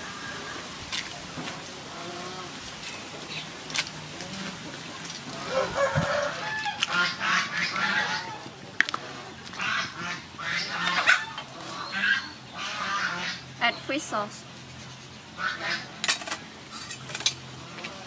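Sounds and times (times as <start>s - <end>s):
fowl making harsh calls: 5.4s - 8.5s, 9.5s - 13.5s, 15.4s - 16.0s.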